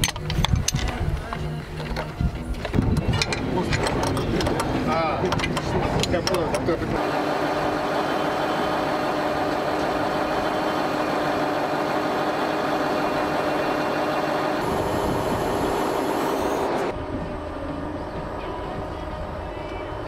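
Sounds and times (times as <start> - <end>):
quieter mechanical noise: 0.0 - 20.0
heavy vehicle engine running: 6.5 - 20.0.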